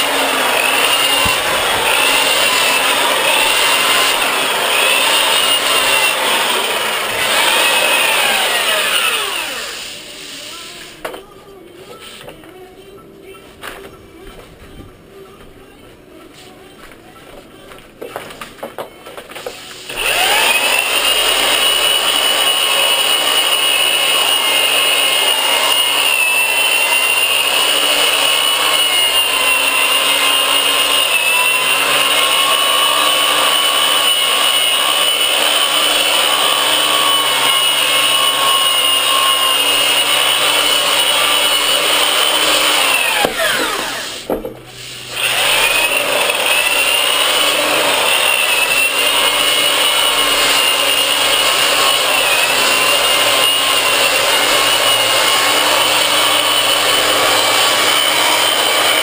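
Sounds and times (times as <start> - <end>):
sander motor whine: 0.0 - 10.0, 19.9 - 44.2, 45.1 - 59.0.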